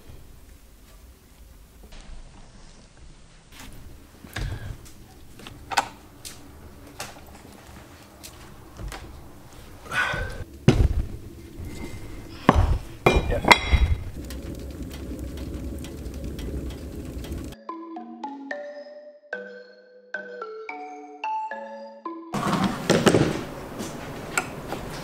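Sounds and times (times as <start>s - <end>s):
metallic ringing: 11.5s - 17.6s.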